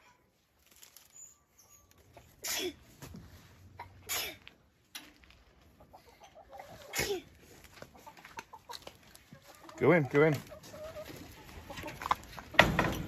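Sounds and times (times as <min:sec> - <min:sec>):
hens clucking: 0:05.5 - 0:12.8.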